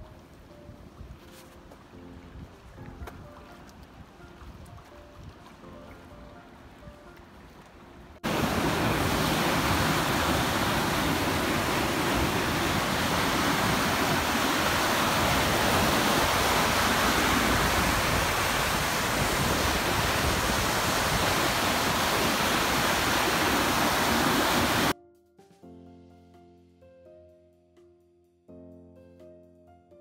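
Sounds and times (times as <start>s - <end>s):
soft music notes: 0.0s - 8.3s, 24.9s - 30.0s
water rushing through weir gate: 8.2s - 24.9s.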